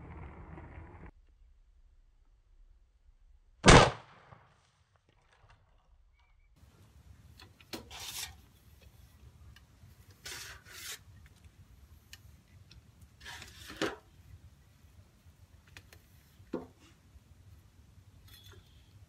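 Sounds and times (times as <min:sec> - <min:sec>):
low outdoor rumble: 0:00.0 - 0:03.8.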